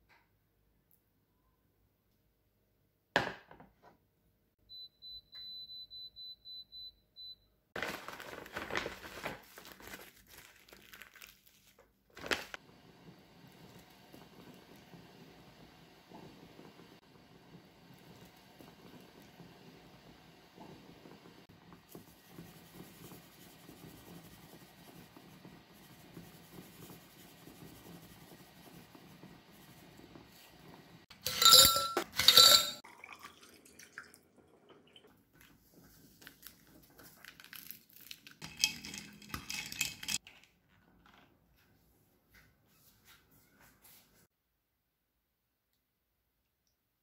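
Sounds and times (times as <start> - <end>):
stew simmering hiss: 12.6 - 31.0
dishes clinking and rattling on tray: 31.1 - 32.8, 38.4 - 40.2
loud ringing glass clinks: 31.2 - 32.8.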